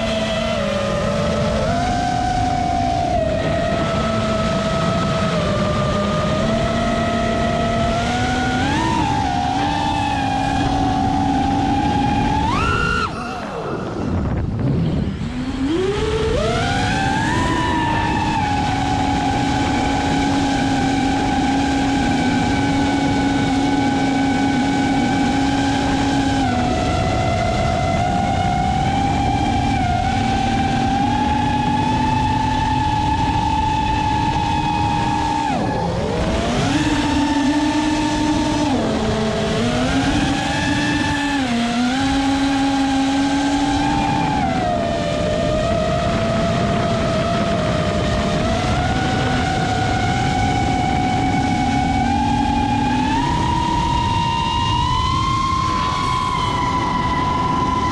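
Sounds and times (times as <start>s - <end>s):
drone motors whining: 0.0s - 57.9s
wind rushing: 8.0s - 21.9s.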